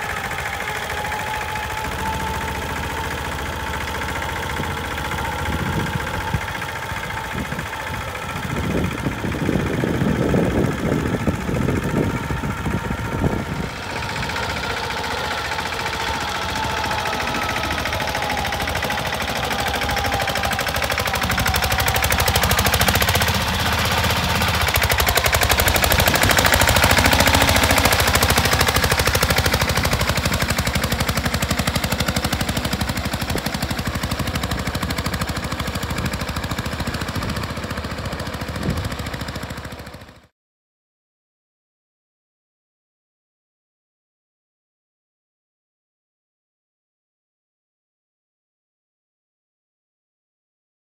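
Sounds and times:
tractor diesel engine chugging: 0.0s - 40.3s.

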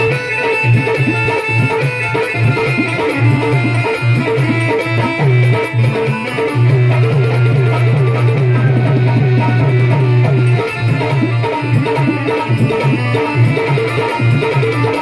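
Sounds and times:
drums: 0.0s - 15.0s
melody instrument: 0.0s - 15.0s.

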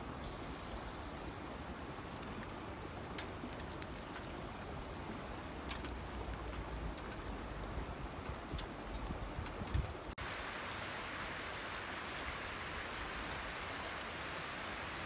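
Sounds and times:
meat sizzling on grill: 0.0s - 8.5s
fire popping and crackling: 0.0s - 10.2s.

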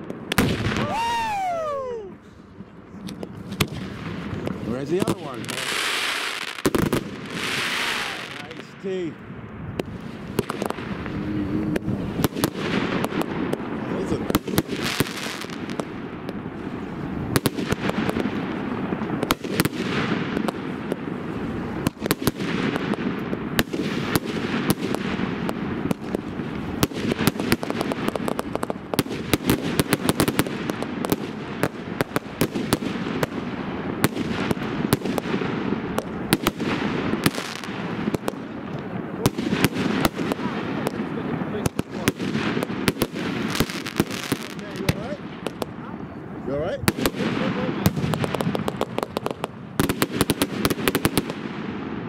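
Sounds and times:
steady low rumble: 8.0s - 14.8s.

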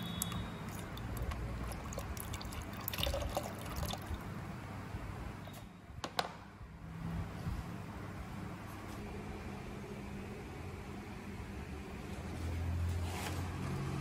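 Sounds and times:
oil pouring into pan: 0.2s - 4.2s.

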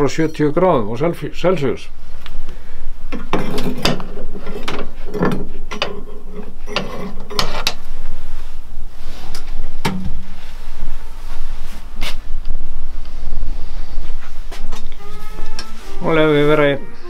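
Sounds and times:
steady low hum: 0.0s - 17.0s
metal clanks and scrapes: 3.1s - 7.8s.

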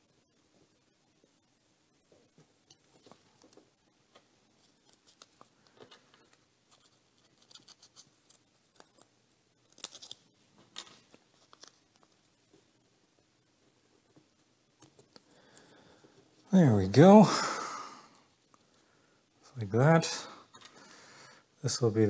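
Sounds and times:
tape clicking and crinkling: 2.6s - 12.7s.

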